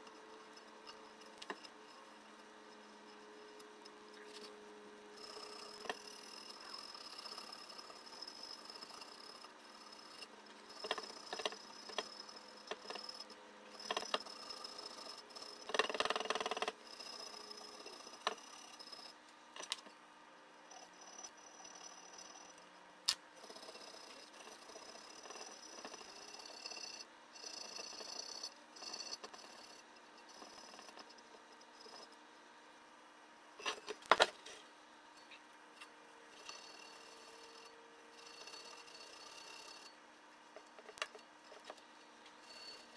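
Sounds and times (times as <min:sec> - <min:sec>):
hand tool scraping metal: 0:36.3 - 0:42.9.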